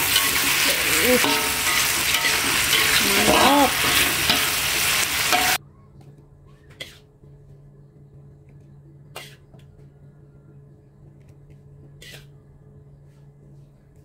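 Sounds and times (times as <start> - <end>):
fish sizzling in a wok: 0.0 - 5.6
metal spatula stirring: 0.0 - 5.6
faint low hum: 5.6 - 14.0.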